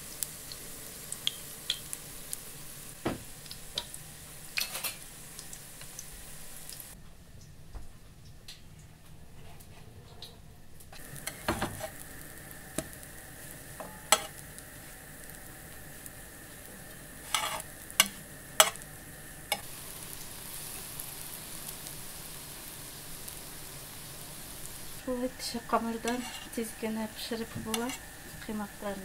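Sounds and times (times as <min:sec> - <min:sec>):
pancakes sizzling in frying pan: 0:00.0 - 0:07.0, 0:11.0 - 0:29.0
spatula scraping pan: 0:11.2 - 0:12.0, 0:13.8 - 0:14.3, 0:17.2 - 0:18.8, 0:25.8 - 0:26.8, 0:27.4 - 0:28.1.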